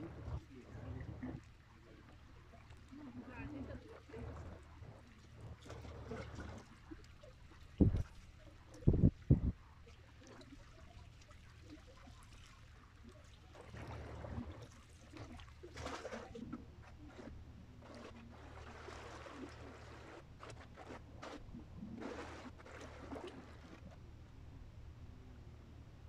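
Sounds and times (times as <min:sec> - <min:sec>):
wind rumble on microphone: 0:07.8 - 0:08.2, 0:08.8 - 0:09.6
small waves lapping on shore: 0:09.7 - 0:23.9.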